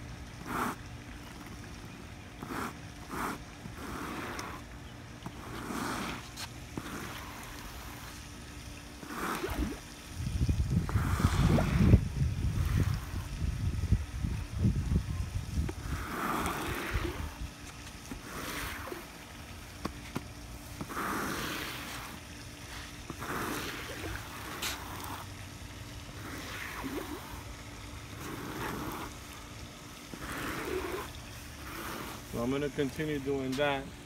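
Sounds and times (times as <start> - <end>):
squeegee scraping wet sealer: 0.4 - 8.3, 9.0 - 9.8, 10.7 - 13.6, 15.6 - 25.3, 26.0 - 33.8
wind buffeting microphone: 9.5 - 17.6.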